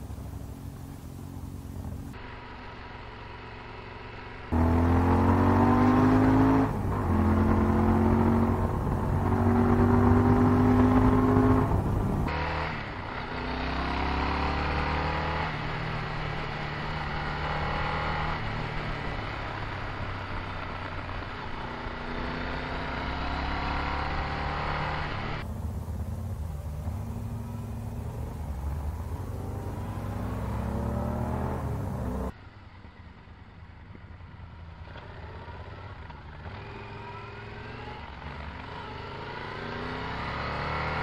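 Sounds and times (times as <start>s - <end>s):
motorcycle engine accelerating: 0.0s - 41.0s.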